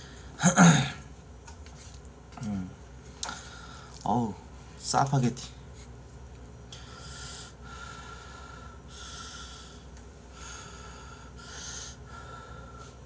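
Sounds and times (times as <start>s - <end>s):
man breathing heavily through nose: 3.3s - 4.0s, 6.7s - 13.0s.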